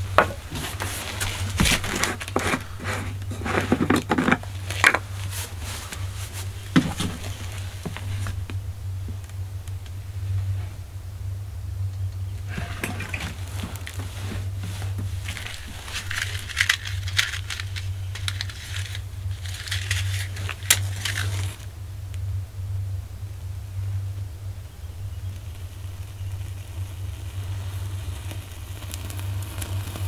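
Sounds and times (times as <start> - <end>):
hands crumpling dry tinder: 0.0 - 8.6, 12.4 - 21.7
steady low hum: 0.0 - 30.0.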